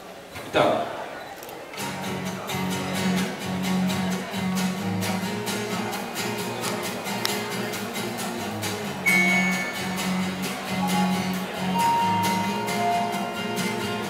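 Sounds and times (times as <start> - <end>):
strummed acoustic guitars: 1.8 - 14.0
steady beat: 9.1 - 14.0.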